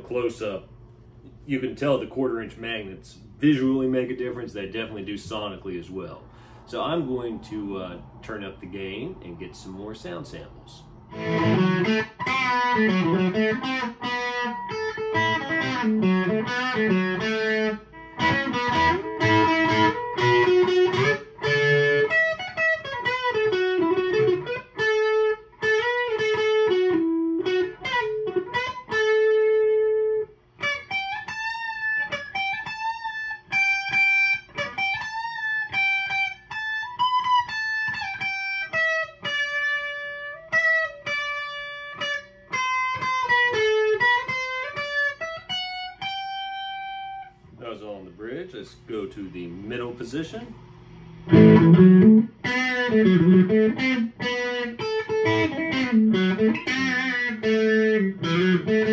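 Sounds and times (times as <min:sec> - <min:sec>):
distorted electric guitar: 0:11.0 - 0:47.5, 0:51.2 - 0:58.9.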